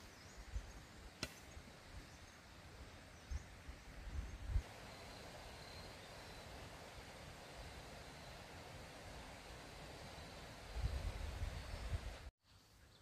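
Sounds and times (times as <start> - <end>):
distant bird chirps: 0.0 - 8.7.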